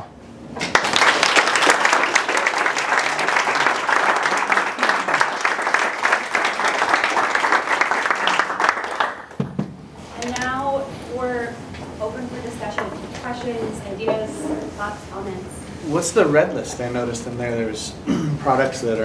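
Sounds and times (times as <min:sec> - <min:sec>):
audience applauding: 0:00.6 - 0:09.4.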